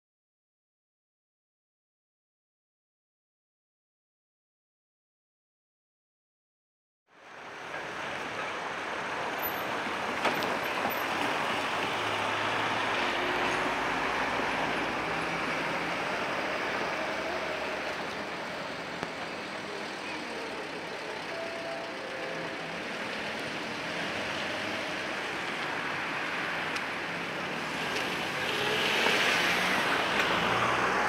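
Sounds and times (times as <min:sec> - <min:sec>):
city street traffic: 0:07.1 - 0:31.0.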